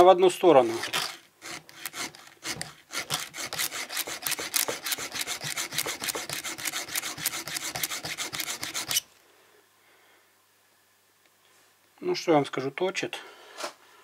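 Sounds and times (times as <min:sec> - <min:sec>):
file rasping on chainsaw chain: 0:00.6 - 0:09.0.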